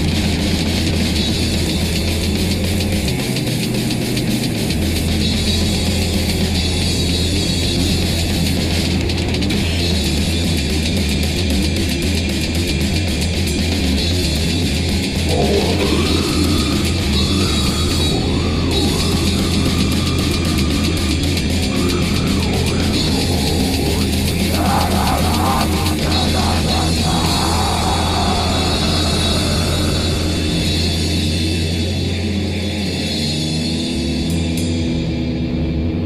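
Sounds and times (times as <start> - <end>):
distorted guitar: 0.0 - 36.0
drums: 0.0 - 36.0
low drone: 15.0 - 32.8
wavering distorted pitches: 15.3 - 31.0.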